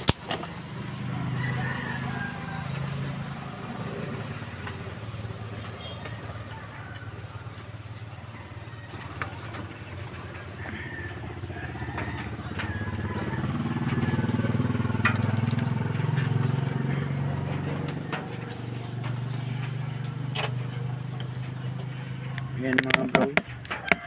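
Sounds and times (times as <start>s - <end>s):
sharp clicks: 0.0s - 0.6s
vehicle engine running: 0.0s - 24.0s.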